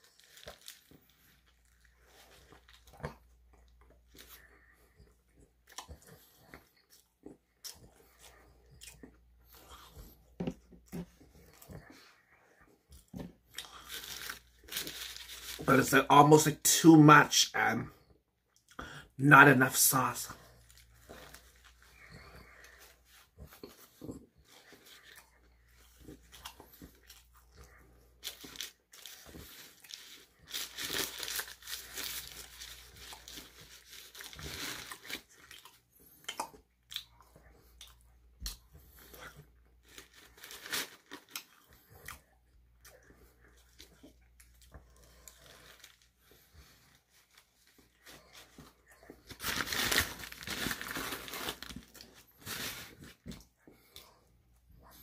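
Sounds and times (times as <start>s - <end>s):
paper wrapper crinkling and tearing: 0.0s - 3.0s, 13.6s - 16.8s, 28.0s - 35.7s, 39.8s - 41.5s, 44.4s - 53.3s
chewing and biting food: 0.0s - 15.6s, 20.4s - 49.5s.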